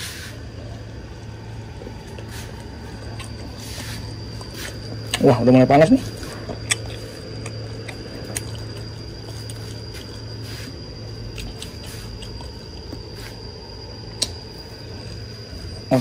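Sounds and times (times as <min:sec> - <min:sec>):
electrical hum with high whine: 0:00.0 - 0:16.0
small ticks: 0:04.2 - 0:13.5, 0:14.1 - 0:15.8.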